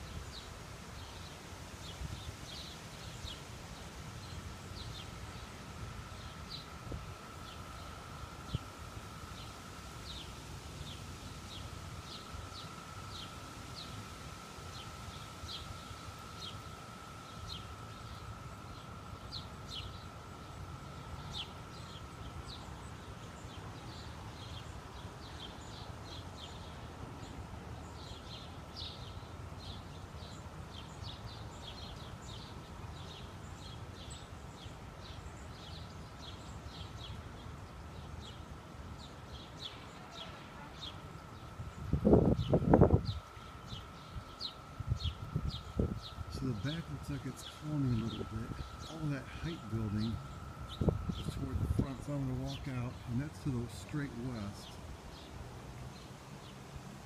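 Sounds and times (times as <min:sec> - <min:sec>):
birds chirping: 0:00.0 - 0:56.7
faint steady high tone: 0:39.7 - 0:54.8
wind rumble on microphone: 0:41.3 - 0:52.7.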